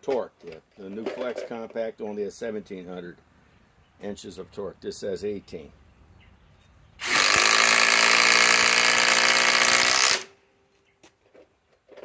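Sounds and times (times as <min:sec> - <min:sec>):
impact driver rattling: 0:07.0 - 0:10.3.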